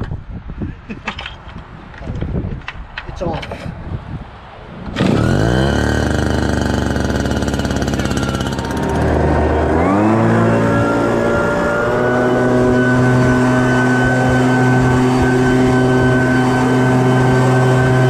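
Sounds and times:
leaf blower engine: 4.9 - 18.0.

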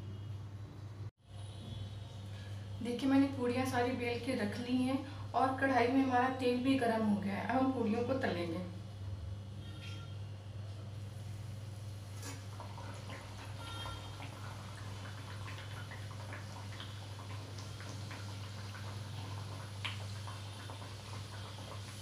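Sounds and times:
food deep-frying in hot oil: 10.9 - 22.0.

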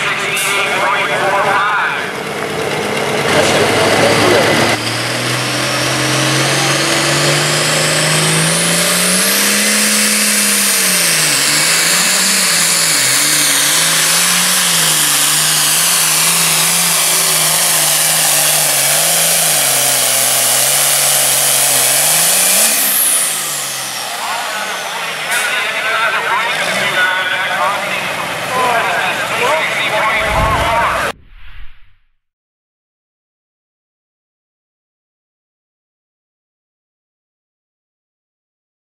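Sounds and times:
diesel tractor engine revving: 0.0 - 31.2
high whine: 29.9 - 32.1.

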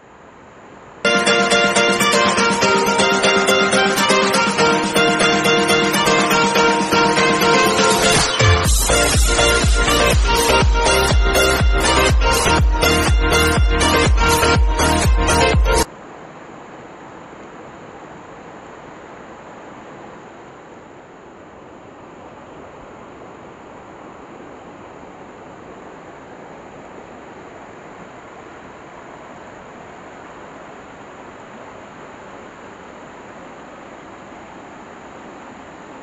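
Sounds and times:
stream rushing over rocks: 15.8 - 36.0.

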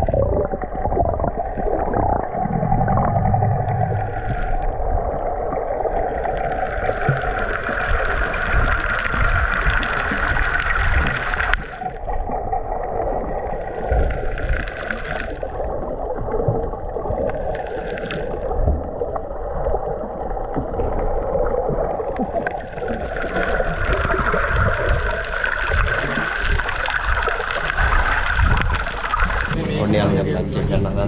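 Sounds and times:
low rumbles: 0.0 - 11.8, 23.8 - 31.0
water rushing along hull: 0.0 - 31.0.

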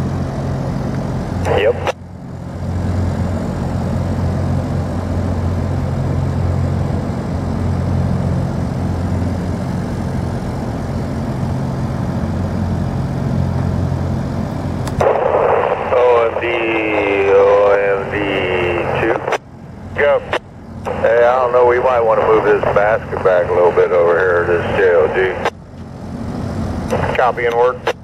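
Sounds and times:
diesel engines droning: 0.0 - 28.0
two-way radio noise: 1.4 - 2.0, 15.0 - 25.6, 26.9 - 28.0.

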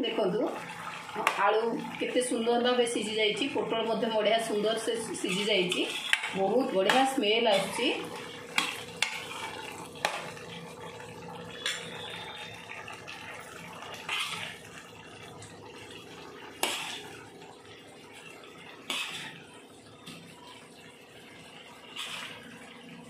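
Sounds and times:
ladle stirring thick curry: 4.8 - 17.4, 18.1 - 22.9.

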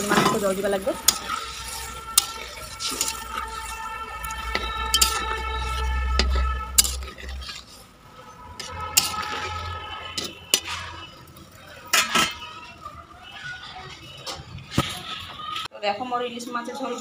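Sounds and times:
water pouring into a pan: 0.0 - 12.8.

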